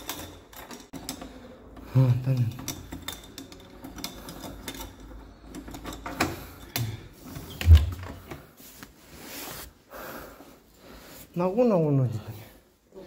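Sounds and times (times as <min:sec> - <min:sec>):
key rattling in door lock: 0:00.0 - 0:01.2, 0:02.0 - 0:06.9.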